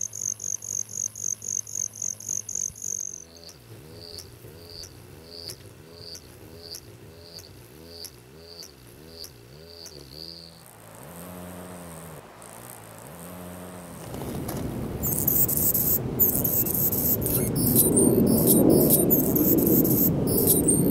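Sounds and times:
hummingbird high scratchy song: 0.0s - 10.9s, 15.0s - 20.9s
hummingbird wings humming: 0.0s - 20.9s.

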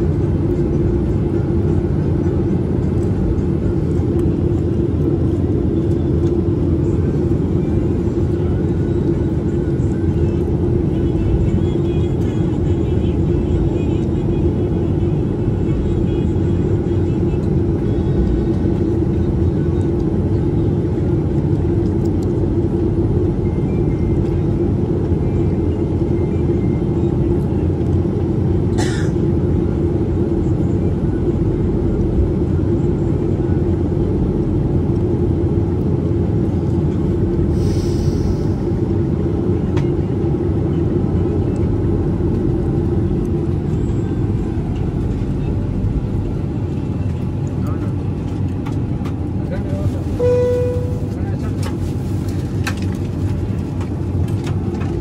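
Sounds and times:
jet cabin low rumble: 0.0s - 55.0s.

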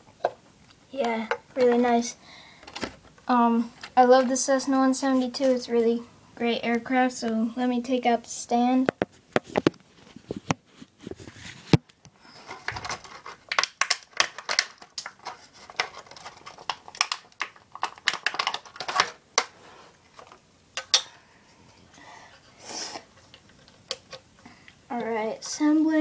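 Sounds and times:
plastic blister package crinkling: 12.3s - 21.0s
small plastic parts clicking: 12.5s - 19.5s.

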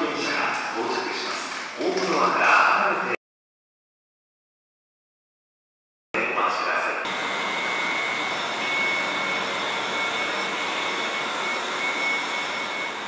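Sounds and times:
subway train hiss and whine: 6.2s - 13.0s.

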